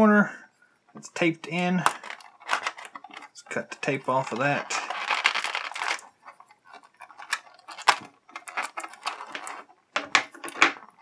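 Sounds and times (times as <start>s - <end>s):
plastic packaging clicks and crinkles: 1.8s - 11.0s.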